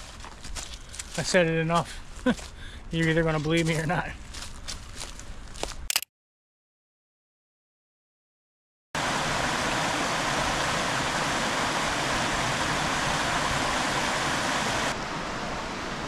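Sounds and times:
stream water rushing: 0:09.0 - 0:16.0.

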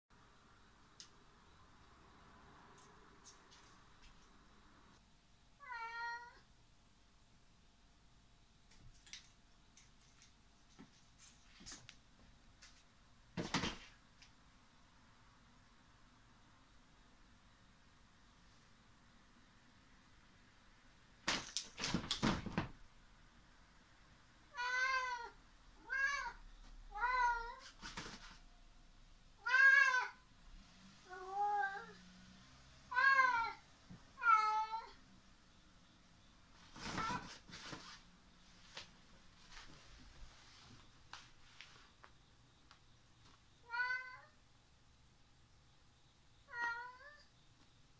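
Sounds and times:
cat meowing: 0:05.6 - 0:06.4, 0:24.5 - 0:27.6, 0:29.4 - 0:30.2, 0:32.9 - 0:33.6, 0:34.2 - 0:35.0, 0:43.6 - 0:44.4, 0:46.5 - 0:47.3.

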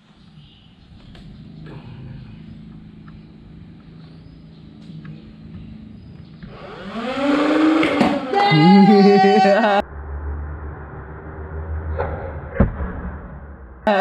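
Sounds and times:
person's drawn-out voice: 0:08.4 - 0:09.8.

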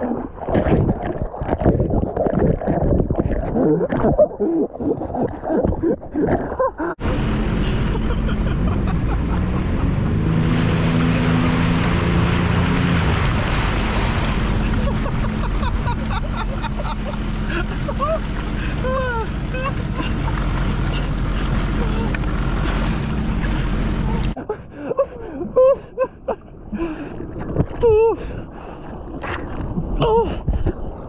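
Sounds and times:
knocks and splashes: 0:00.0 - 0:24.4
water sloshing and gurgling: 0:00.0 - 0:31.0
jet ski engine running: 0:07.0 - 0:24.4
wind and spray noise: 0:07.0 - 0:24.4.

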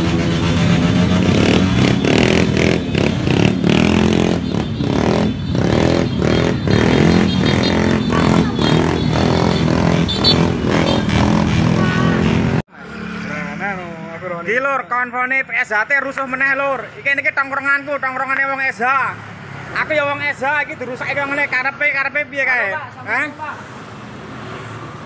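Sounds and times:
motorcycle engines revving: 0:00.0 - 0:14.7.

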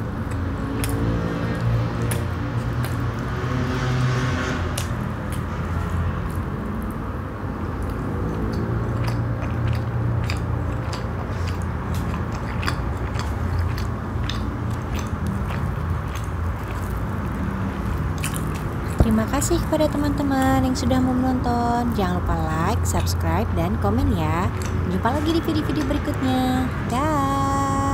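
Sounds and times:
wet mouth clicks: 0:00.0 - 0:03.4, 0:07.8 - 0:19.2, 0:24.4 - 0:25.3
chewing bread: 0:00.0 - 0:26.2.

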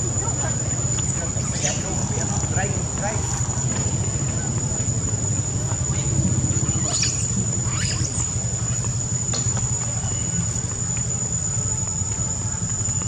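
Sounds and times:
high-pitched insect drone: 0:00.0 - 0:13.0
low steady rumble: 0:00.0 - 0:13.0
monkeys squealing: 0:01.2 - 0:02.2, 0:05.9 - 0:09.5.

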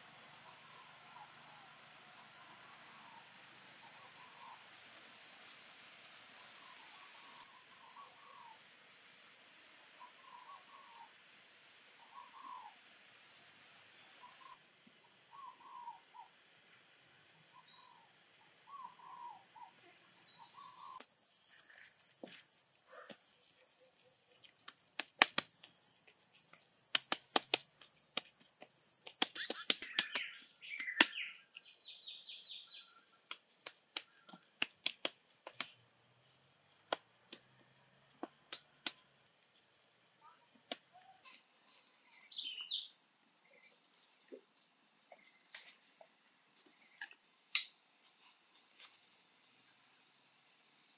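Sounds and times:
insects buzzing: 0:20.8 - 0:47.3
hands slapping wet clay: 0:25.0 - 0:25.8, 0:26.9 - 0:31.2, 0:33.3 - 0:35.8
bird calling: 0:27.0 - 0:31.5.

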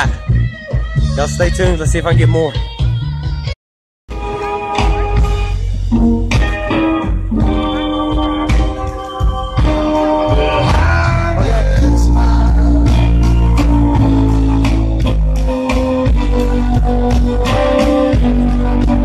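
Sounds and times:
live band playing amplified music: 0:04.1 - 0:19.0.

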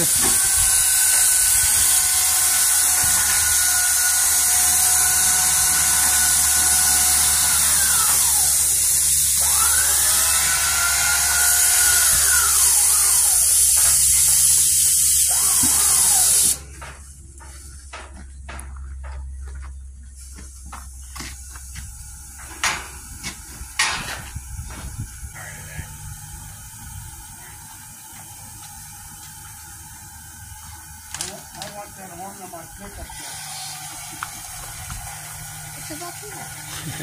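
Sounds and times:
steam hissing: 0:00.0 - 0:16.7, 0:20.2 - 0:37.0
electric motor whine: 0:00.0 - 0:16.8, 0:21.8 - 0:37.0.

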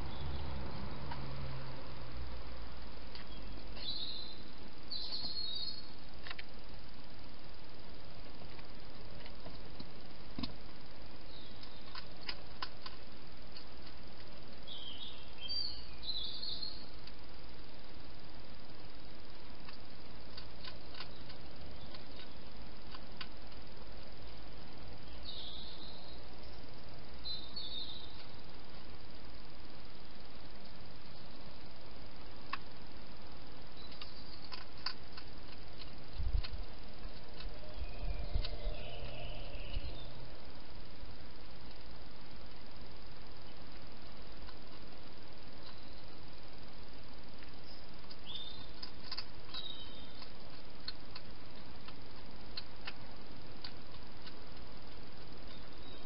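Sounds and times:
bird chirping: 0:00.0 - 0:01.8, 0:03.1 - 0:06.0, 0:11.2 - 0:12.4, 0:14.5 - 0:17.0, 0:20.3 - 0:22.6, 0:24.2 - 0:28.4, 0:33.6 - 0:41.2, 0:44.5 - 0:46.3, 0:47.5 - 0:51.0, 0:55.4 - 0:56.0
steady hiss: 0:00.0 - 0:56.0
hedgehog chewing clicks: 0:19.6 - 0:23.6, 0:33.8 - 0:37.5, 0:47.4 - 0:56.0.

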